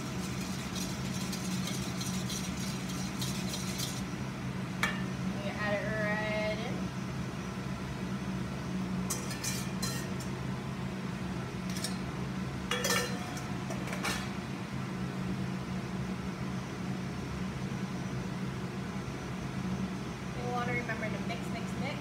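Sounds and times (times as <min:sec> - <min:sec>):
steady low hum: 0:00.0 - 0:22.0
metal bowl clinking against pan: 0:04.8 - 0:05.1, 0:09.1 - 0:10.2, 0:12.7 - 0:14.3.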